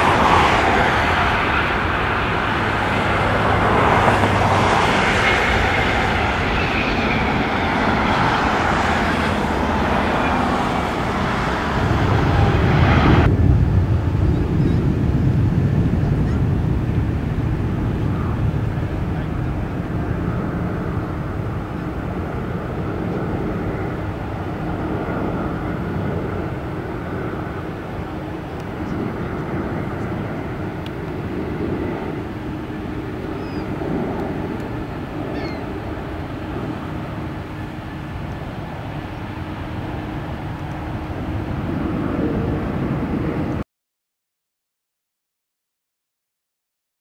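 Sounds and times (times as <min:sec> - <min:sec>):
jet engines running: 0:00.0 - 0:43.6.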